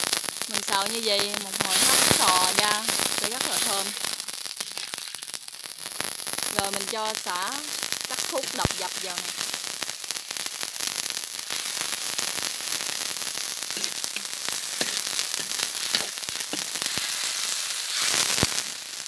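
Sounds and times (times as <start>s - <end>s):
sizzling in a hot wok: 0.0s - 19.0s
metal spatula stirring: 13.8s - 17.0s.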